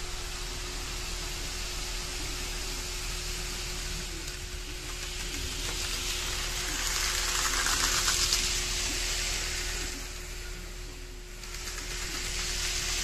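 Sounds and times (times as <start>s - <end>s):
model train motor running: 0.0s - 13.0s
model train wheels rolling: 3.8s - 13.0s.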